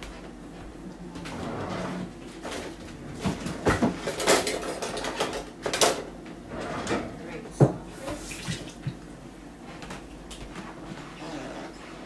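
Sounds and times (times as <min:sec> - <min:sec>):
kitchen things clattering: 0:02.4 - 0:08.8.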